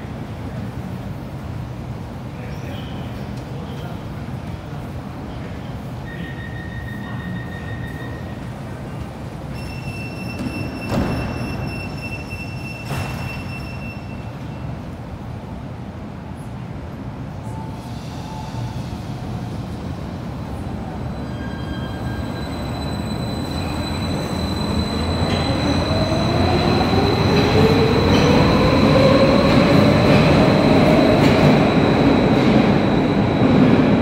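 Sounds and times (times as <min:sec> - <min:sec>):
train wheels rumbling on rail: 0:17.7 - 0:34.0.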